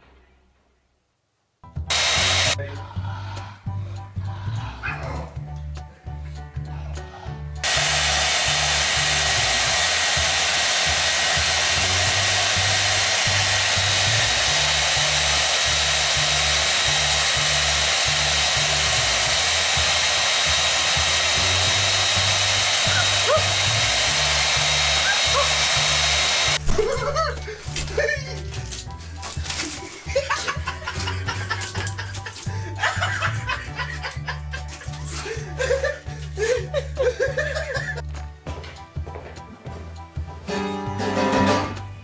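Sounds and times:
background music: 1.6 - 42.0
hair dryer running: 1.9 - 2.6, 7.6 - 26.6.

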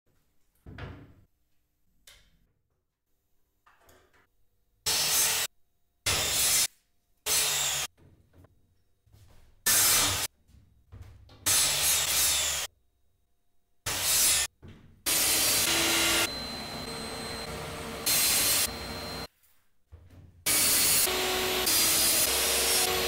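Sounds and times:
power saw cutting wood: 13.9 - 14.5, 15.1 - 19.3, 20.5 - 23.0.

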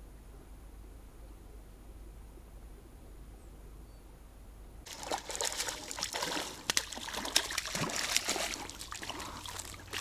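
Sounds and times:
water splashing and trickling: 4.8 - 10.0.

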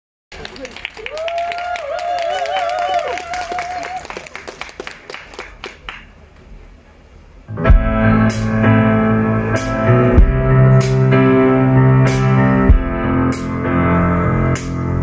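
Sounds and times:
crowd clapping: 0.3 - 6.3
keyboard chords: 7.5 - 15.0
strong bass: 7.5 - 15.0.

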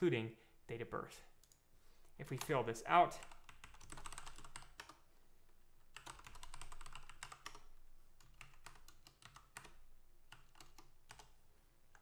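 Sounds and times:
computer keyboard typing: 3.2 - 5.0, 5.9 - 12.0.

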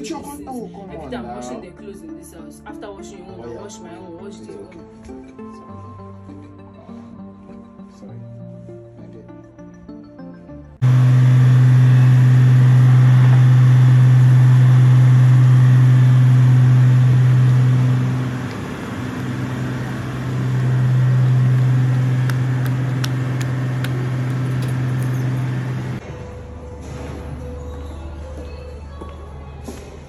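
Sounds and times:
low engine-like hum: 10.8 - 30.0.

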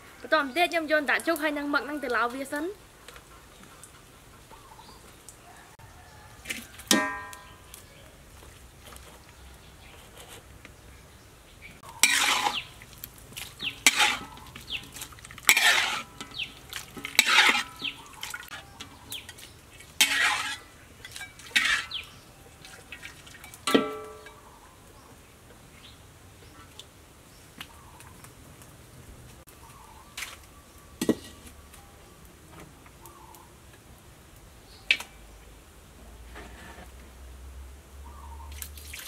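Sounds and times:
metal ladle scraping steel wok: 11.8 - 22.2.

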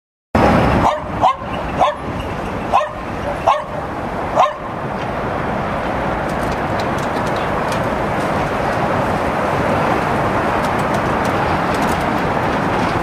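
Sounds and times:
dog barking: 0.8 - 2.1, 2.7 - 4.7.

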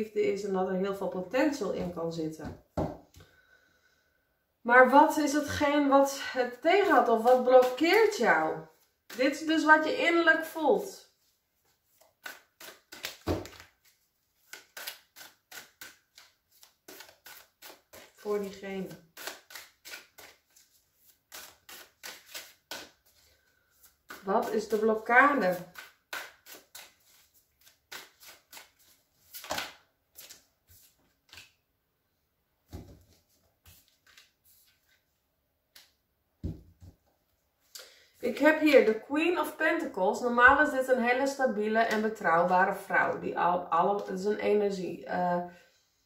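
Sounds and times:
cards being shuffled: 6.9 - 9.5, 11.2 - 31.6, 32.7 - 35.0.

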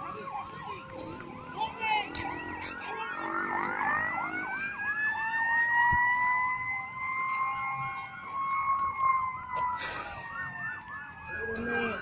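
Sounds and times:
siren slow wail: 0.0 - 12.0
siren fast yelp: 1.2 - 9.5.

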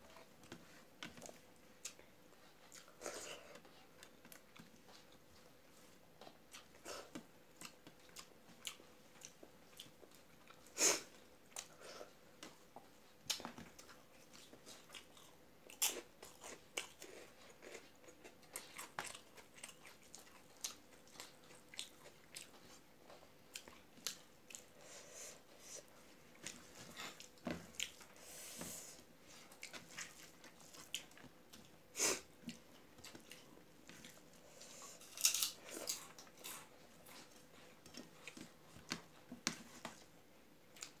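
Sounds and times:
chewing: 0.1 - 10.8, 11.5 - 25.0, 25.7 - 28.2, 29.3 - 39.2, 40.7 - 41.0
crunching food: 34.9 - 36.7.

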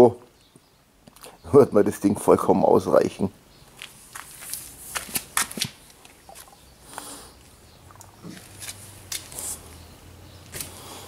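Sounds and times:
sandalled footsteps on concrete: 3.6 - 6.6, 8.2 - 11.0.

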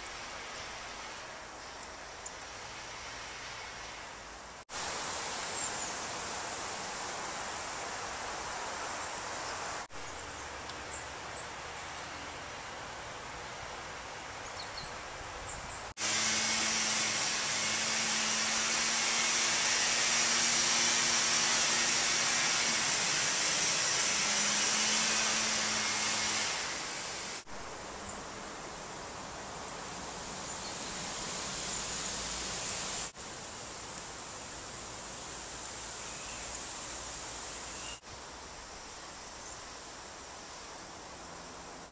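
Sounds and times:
rushing noise with low hum: 0.0 - 41.9
steady hiss: 0.0 - 41.9
faint high bird chirps: 37.6 - 38.0.

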